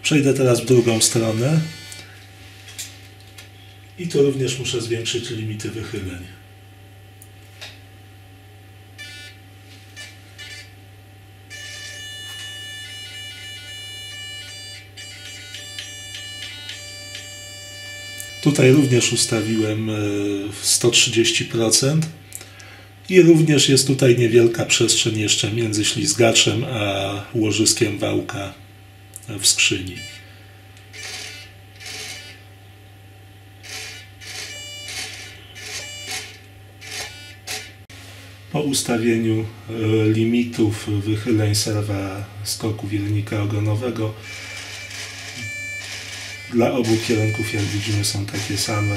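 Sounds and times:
constant low hum: 0:00.0 - 0:48.9
servo buzzing: 0:00.6 - 0:03.5, 0:09.0 - 0:10.8, 0:11.5 - 0:20.2, 0:29.8 - 0:32.5, 0:33.6 - 0:37.9, 0:44.2 - 0:48.9
servo whirring: 0:30.9 - 0:32.4, 0:33.6 - 0:37.9, 0:44.2 - 0:48.9.

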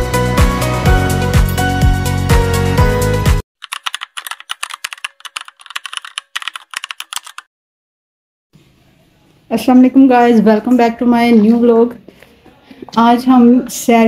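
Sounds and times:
upbeat background music: 0:00.0 - 0:03.4
keyboard key clicks: 0:03.6 - 0:07.5.

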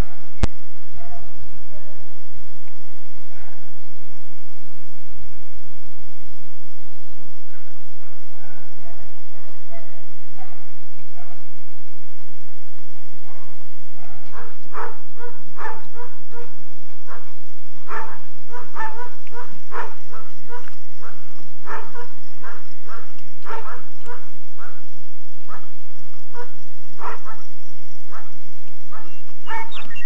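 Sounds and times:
dog barking: 0:01.0 - 0:01.9, 0:03.3 - 0:03.7, 0:07.5 - 0:11.5, 0:13.3 - 0:24.9, 0:25.5 - 0:27.5, 0:28.1 - 0:30.0.

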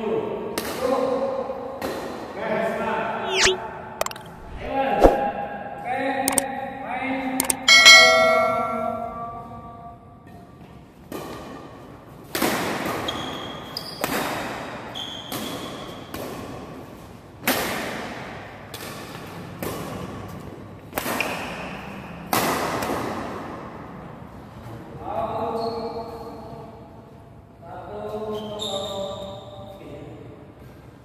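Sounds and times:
chime: 0:07.7 - 0:09.5.

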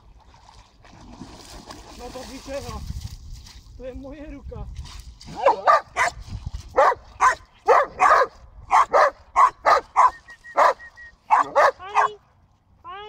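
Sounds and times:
dog barking: 0:05.4 - 0:06.2, 0:06.8 - 0:12.2.

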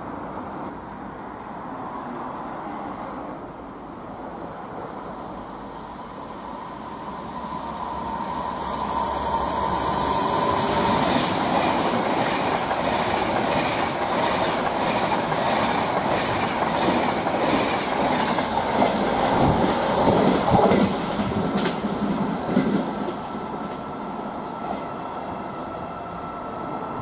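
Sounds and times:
electric train passing: 0:00.0 - 0:27.0
wheels clacking over rail joints: 0:10.7 - 0:24.8.

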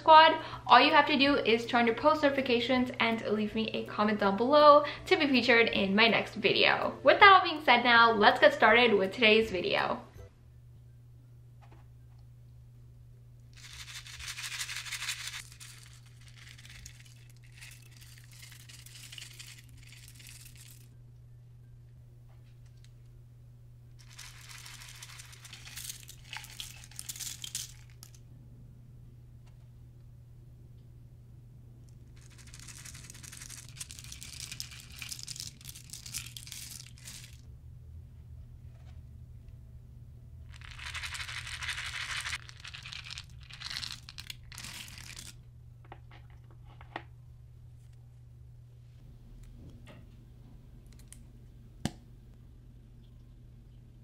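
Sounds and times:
steady low hum: 0:00.0 - 0:54.0
confetti pattering into bowl: 0:13.6 - 0:20.9, 0:32.2 - 0:37.4, 0:40.5 - 0:45.3.

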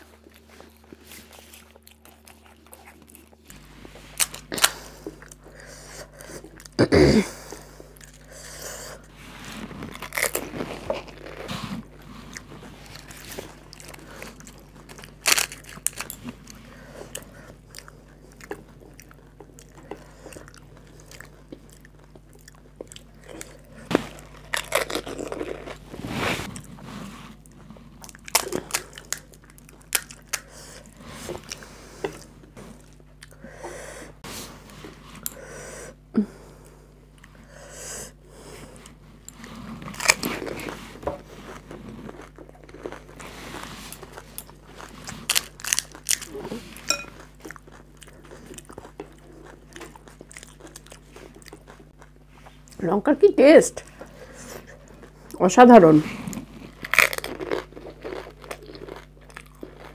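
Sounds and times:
wet chewing: 0:00.0 - 0:06.8, 0:07.4 - 0:26.8, 0:27.4 - 0:33.6, 0:38.6 - 0:52.8
crisp shells crunching: 0:09.8 - 0:16.6, 0:23.0 - 0:26.0, 0:44.0 - 0:47.0, 0:56.7 - 0:59.9.

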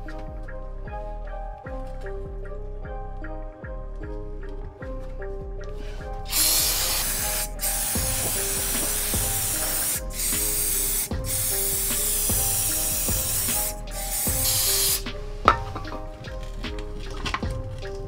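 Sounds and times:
aerosol spray hissing: 0:06.3 - 0:15.1.

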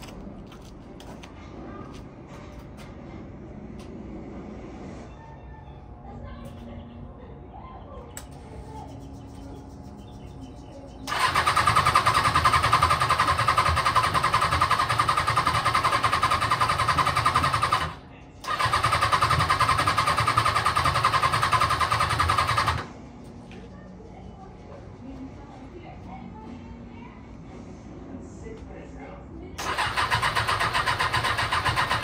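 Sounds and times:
electric starter cranking motorcycle engine: 0:11.1 - 0:22.9, 0:29.6 - 0:32.0.

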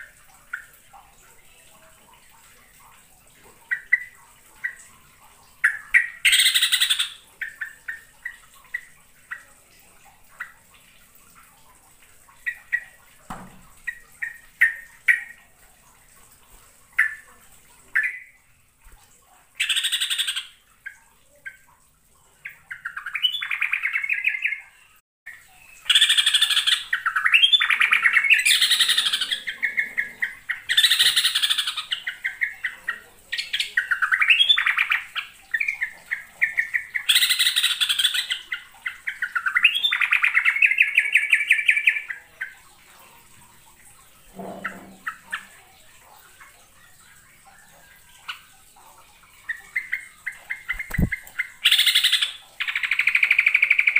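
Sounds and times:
short bird chirps: 0:50.7 - 0:52.1.

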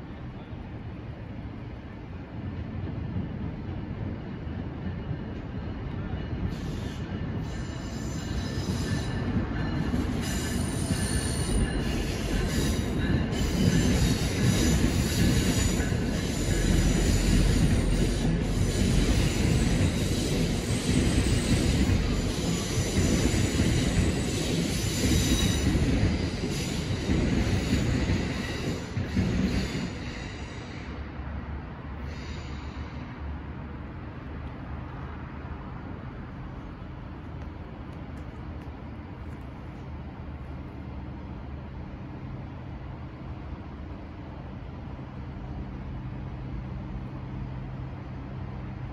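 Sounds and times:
train rumbling past: 0:00.0 - 0:48.9
train wheel squeal: 0:03.0 - 0:33.4.

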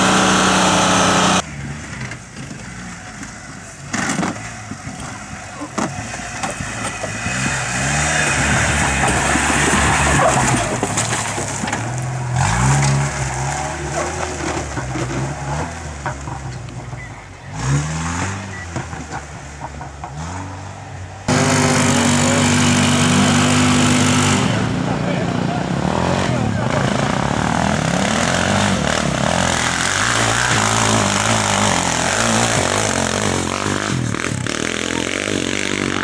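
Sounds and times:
quad bike engine running: 0:00.0 - 0:03.1, 0:21.3 - 0:36.0
car engine revving: 0:00.0 - 0:36.0.

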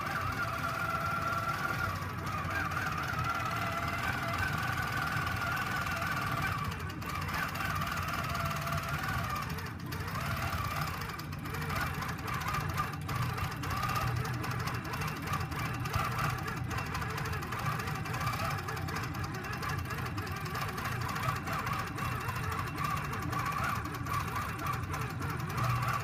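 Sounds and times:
needle stitching rapidly: 0:00.0 - 0:26.0
quilting machine motor humming: 0:00.0 - 0:26.0.

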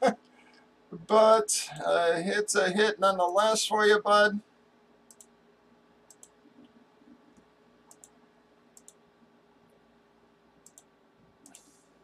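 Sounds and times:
computer mouse clicking: 0:05.1 - 0:05.4, 0:06.1 - 0:08.2, 0:08.8 - 0:09.0, 0:10.6 - 0:11.8.

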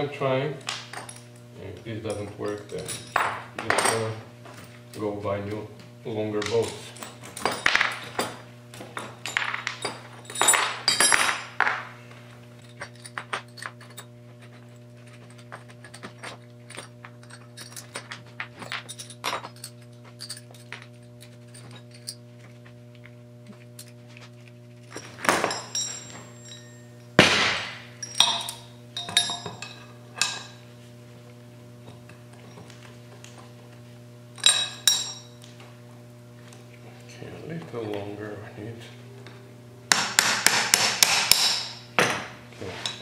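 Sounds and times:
low hum: 0:00.6 - 0:39.9
hand tools clattering on workbench: 0:01.9 - 0:04.7, 0:06.4 - 0:11.9, 0:24.9 - 0:26.9, 0:27.6 - 0:30.6.

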